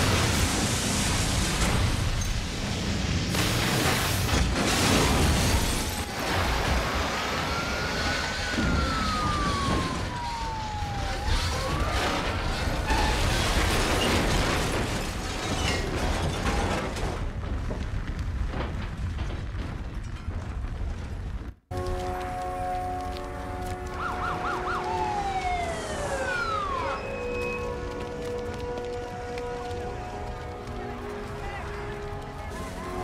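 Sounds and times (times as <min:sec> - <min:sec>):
explosion and fire: 0:00.0 - 0:33.0
falling debris crashing: 0:00.0 - 0:33.0
police siren wailing: 0:05.4 - 0:13.6, 0:22.3 - 0:31.4.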